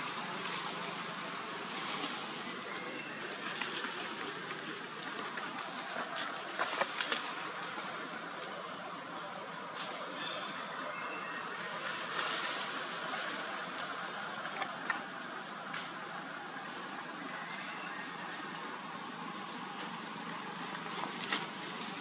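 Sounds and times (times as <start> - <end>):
constant hiss: 0.0 - 22.0
high insect drone: 0.0 - 22.0.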